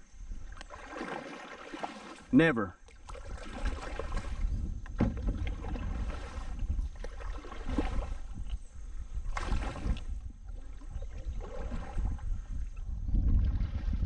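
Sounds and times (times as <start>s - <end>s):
paddle splashing in water: 0.0s - 14.0s
wind on microphone: 3.0s - 14.0s.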